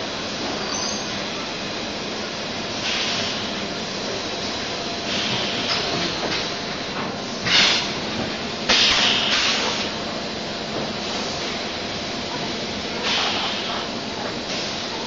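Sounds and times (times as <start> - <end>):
compressed air hissing: 8.7 - 10.0, 12.9 - 14.9.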